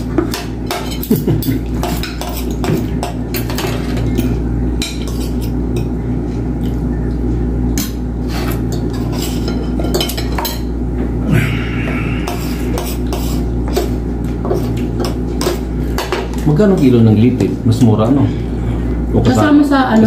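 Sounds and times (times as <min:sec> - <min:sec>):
steady low hum: 0:00.0 - 0:20.0
cutlery clinking on plates: 0:00.2 - 0:05.9, 0:07.8 - 0:10.7.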